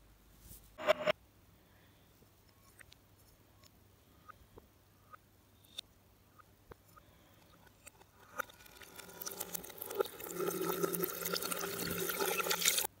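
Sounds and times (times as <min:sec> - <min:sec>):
reversed water splashing in sink: 0:08.2 - 0:12.9.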